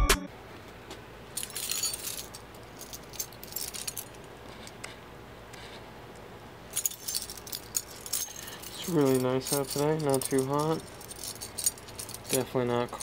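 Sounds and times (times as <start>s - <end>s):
keys jangling: 1.4s - 4.8s, 6.8s - 13.0s.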